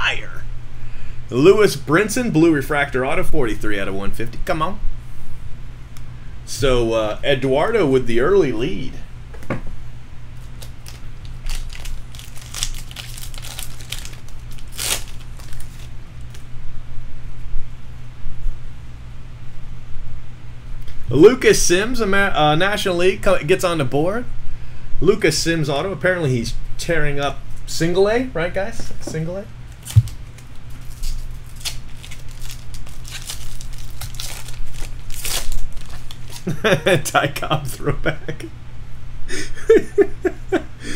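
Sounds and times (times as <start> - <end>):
steady low hum: 0.0 - 40.9
foil wrapper tearing and crinkling: 10.4 - 16.4, 29.7 - 36.8.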